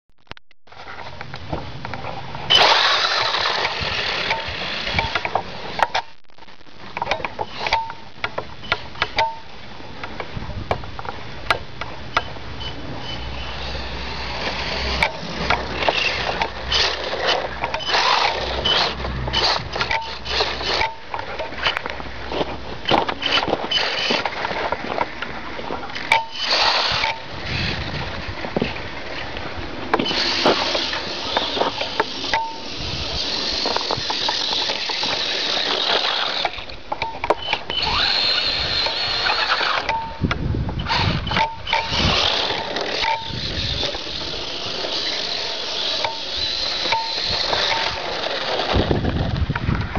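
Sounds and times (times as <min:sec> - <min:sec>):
electric motor whining: 0:02.5 - 0:05.7, 0:13.0 - 0:21.0, 0:29.9 - 0:36.8, 0:37.4 - 0:49.8.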